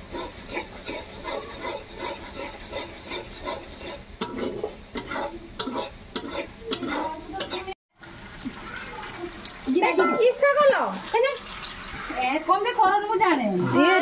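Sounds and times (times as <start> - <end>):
metal spatula scraping pan: 0.0 - 7.8, 13.0 - 14.0
onions sizzling in oil: 0.0 - 14.0.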